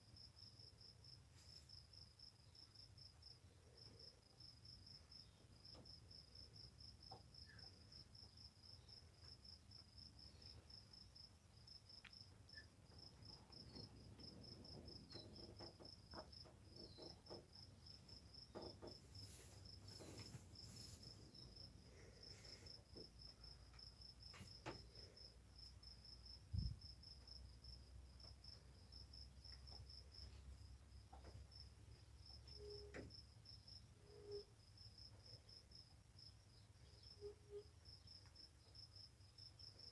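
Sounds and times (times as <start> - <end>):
cricket chirping: 0.0 - 39.9.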